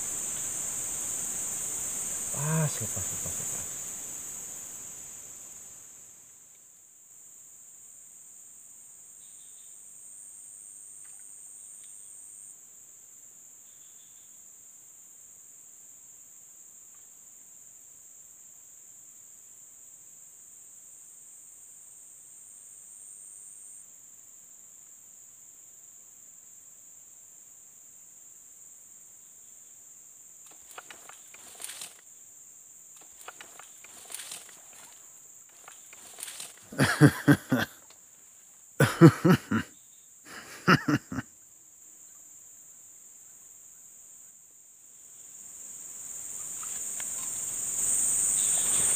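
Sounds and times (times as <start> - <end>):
high-pitched insect chorus: 0.0 - 48.9
soft clicking and rustling: 30.5 - 32.0, 33.0 - 36.7.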